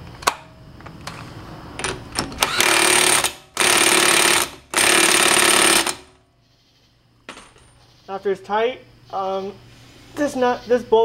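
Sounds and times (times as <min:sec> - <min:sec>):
impact wrench hammering: 0:02.4 - 0:06.2.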